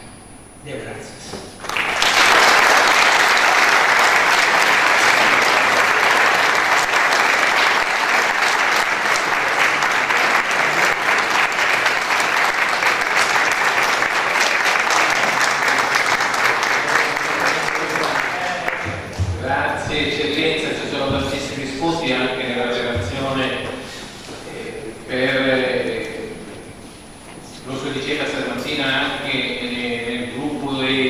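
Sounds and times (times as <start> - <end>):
large audience applauding: 1.6 - 19.2.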